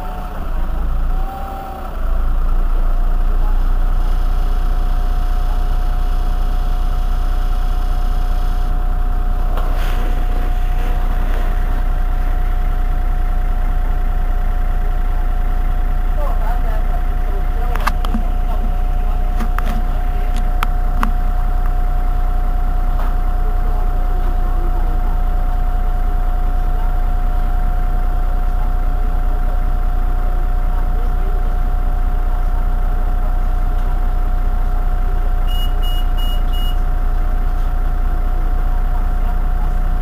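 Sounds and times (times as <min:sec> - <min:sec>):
engine whine: 0:00.0 - 0:25.2
bus engine idling: 0:00.0 - 0:40.0
short high-pitched beeps: 0:35.5 - 0:36.8.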